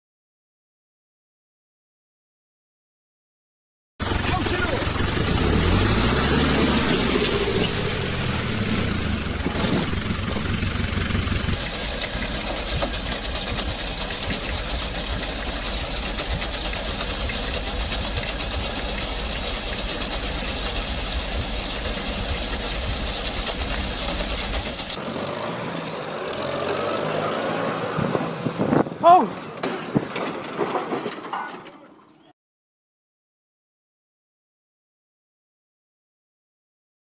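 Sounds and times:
engine running at full throttle: 4.0s - 28.6s.

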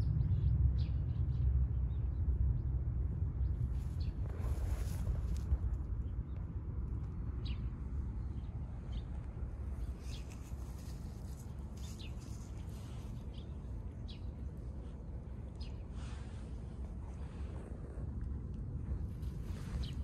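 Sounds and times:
low outdoor rumble: 0.0s - 20.0s
small birds calling: 7.4s - 18.0s.

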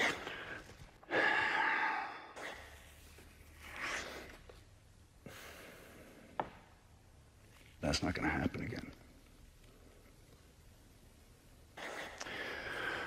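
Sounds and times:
man breathing heavily: 0.0s - 3.1s, 5.2s - 6.4s, 11.8s - 13.0s.

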